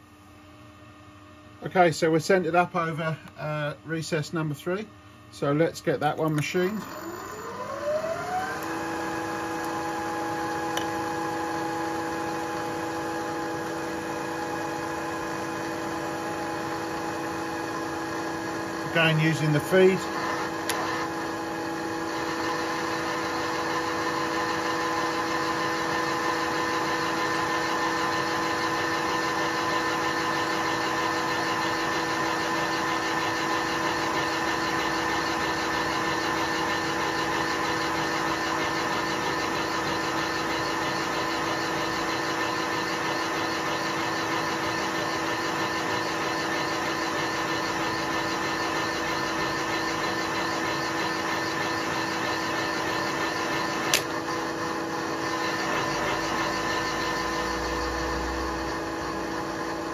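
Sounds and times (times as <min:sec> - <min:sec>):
milling machine humming: 0:01.4 - 0:59.9
cutter cutting metal hiss: 0:18.8 - 0:21.0.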